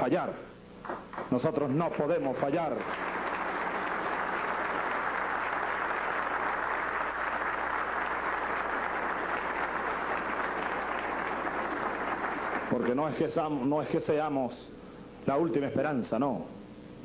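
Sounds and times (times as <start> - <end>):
large audience applauding: 0.9 - 13.4.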